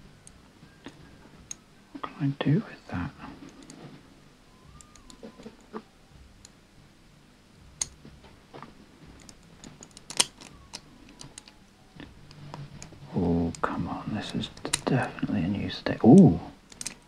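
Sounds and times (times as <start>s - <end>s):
metal puzzle pieces clicking: 9.2s - 11.5s, 16.7s - 17.0s.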